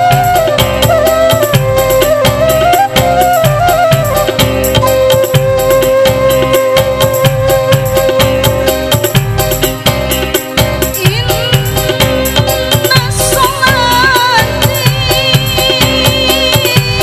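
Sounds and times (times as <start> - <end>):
bamboo flute long high note: 0.0 - 8.7
woman singing: 10.9 - 17.0.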